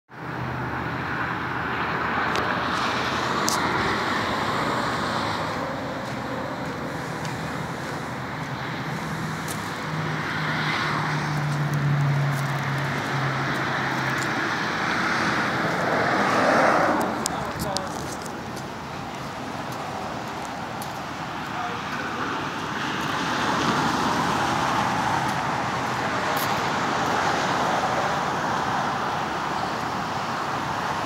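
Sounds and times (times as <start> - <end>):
low engine hum: 0.1 - 31.0
road traffic: 0.1 - 31.0.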